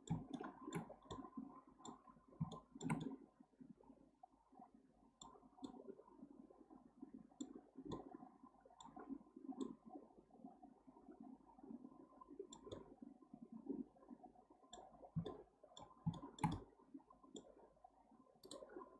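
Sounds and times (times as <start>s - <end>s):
computer mouse clicking: 0.0s - 3.2s, 12.5s - 12.8s, 14.7s - 16.7s, 18.4s - 18.7s.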